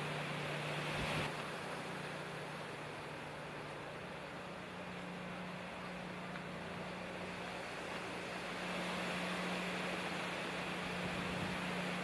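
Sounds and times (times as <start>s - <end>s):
low steady hum: 0.0s - 12.0s
wind and rain hissing: 0.0s - 12.0s.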